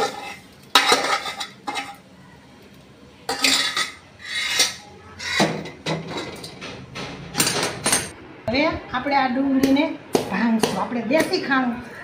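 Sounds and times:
spoon scraping a steel pan: 0.0 - 2.0, 3.3 - 6.5.

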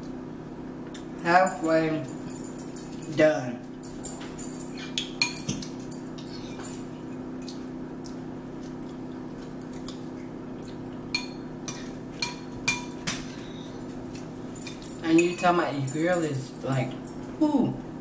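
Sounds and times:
steady low hum: 0.0 - 18.0
cutlery clinking on dishes: 3.9 - 6.9.

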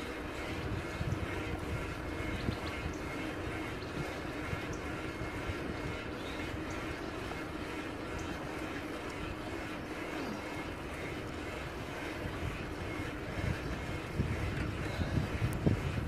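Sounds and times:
wind buffeting microphone: 0.0 - 7.3, 10.7 - 16.0
bicycle rolling on road: 0.0 - 16.0.

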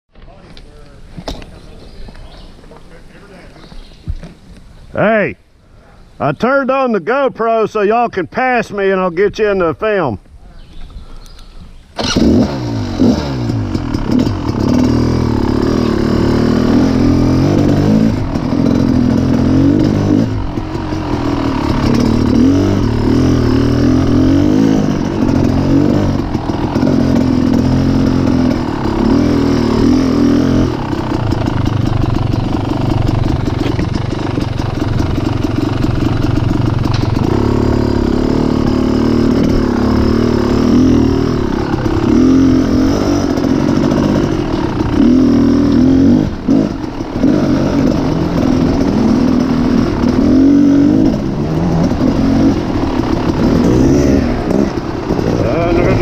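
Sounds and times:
dirt bike engine revving: 11.9 - 56.0.

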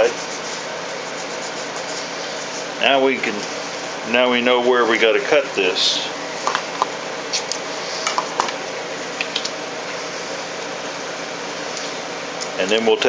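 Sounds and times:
tape clicks and rustles: 9.2 - 9.6.

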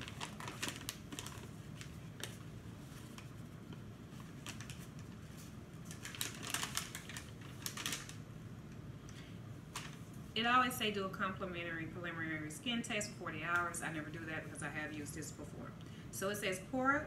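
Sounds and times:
packaging crinkling and clicking: 0.0 - 2.4, 4.2 - 5.2, 5.8 - 8.2
packaging rustling: 0.0 - 8.2, 9.7 - 10.2.

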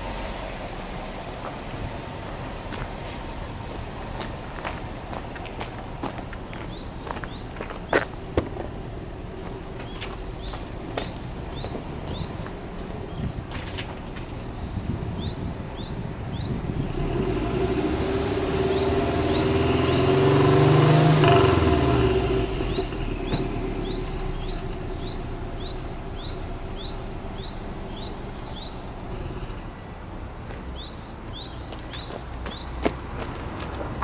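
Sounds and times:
car engine revving: 16.6 - 29.6.

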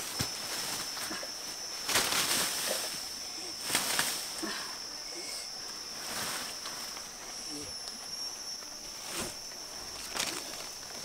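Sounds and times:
stick rustling in undergrowth: 0.0 - 4.4, 5.7 - 7.4
high-pitched insect drone: 0.0 - 11.0.

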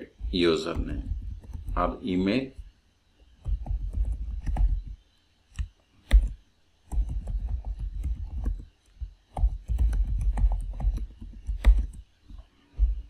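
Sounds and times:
typing on computer keyboard: 0.7 - 1.8, 3.4 - 5.0, 5.6 - 12.0.

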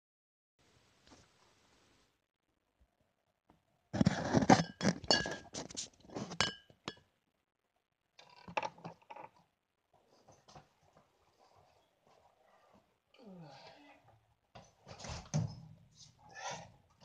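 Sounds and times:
hard objects clattering and clinking: 4.0 - 7.0.

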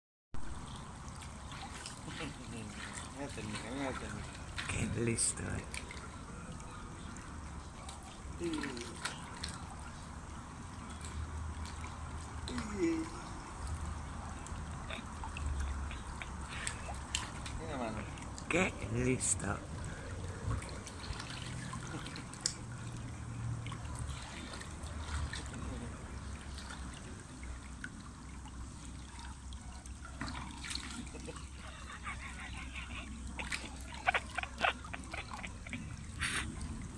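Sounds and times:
low steady hum: 0.4 - 36.9
pool water lapping: 0.4 - 36.9
small splashes: 0.4 - 36.9
dog whining: 31.7 - 36.5.

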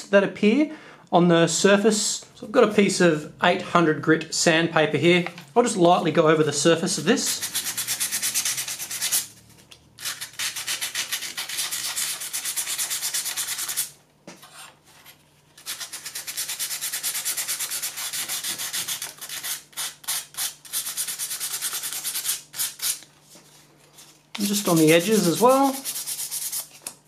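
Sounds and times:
sandpaper rubbing on circuit board: 7.2 - 9.3, 10.0 - 13.9, 15.6 - 23.0, 24.4 - 26.7.

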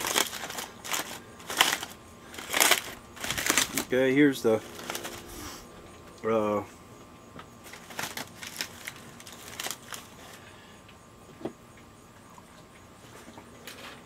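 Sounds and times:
aluminium foil crinkling: 0.0 - 5.7, 7.6 - 10.6.

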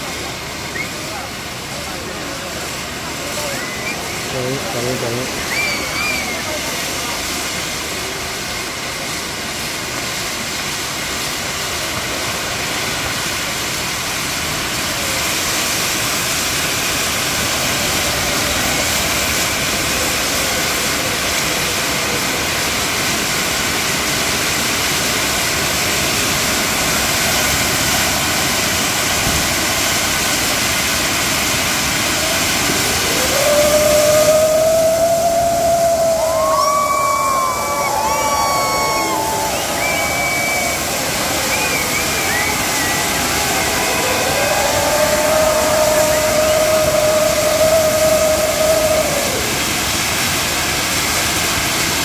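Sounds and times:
fountain fireworks hissing: 0.0 - 52.0
held whistle: 0.6 - 1.3, 3.2 - 4.4, 5.4 - 6.7, 33.0 - 49.6.

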